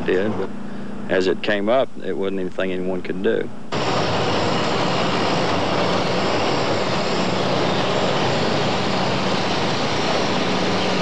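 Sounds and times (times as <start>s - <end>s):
constant low hum: 0.0s - 11.0s
heavy machine engine running: 3.7s - 11.0s.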